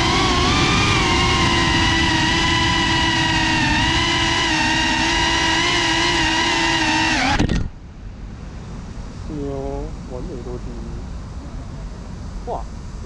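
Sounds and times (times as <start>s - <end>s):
drone propellers whining: 0.0s - 7.8s
low wind rumble: 0.0s - 13.0s.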